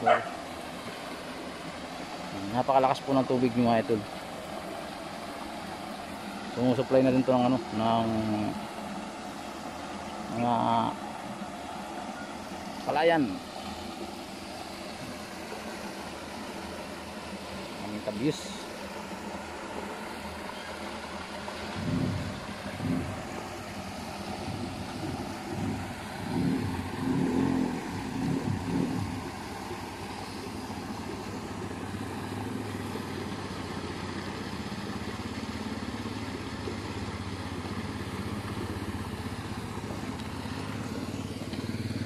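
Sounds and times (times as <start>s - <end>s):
motorcycle engine running: 17.8s - 42.0s.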